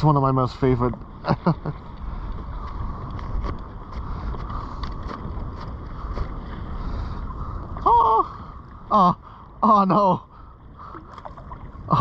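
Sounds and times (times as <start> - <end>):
water lapping against kayak hull: 0.0 - 12.0
wind buffeting microphone: 0.0 - 12.0.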